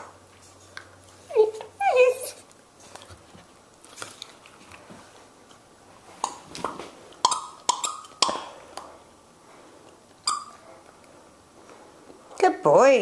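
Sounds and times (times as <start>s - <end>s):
squeaky toy squeaks: 10.3s - 10.6s.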